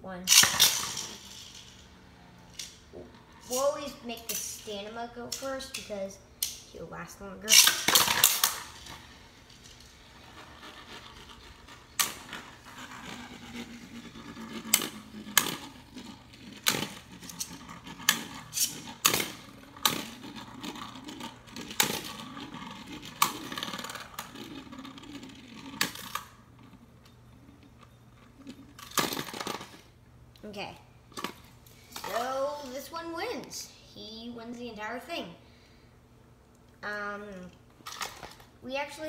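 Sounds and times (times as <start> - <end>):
spinning tops whirring: 0.2 - 30.0
spinning tops clacking together: 0.3 - 6.7, 7.5 - 26.4.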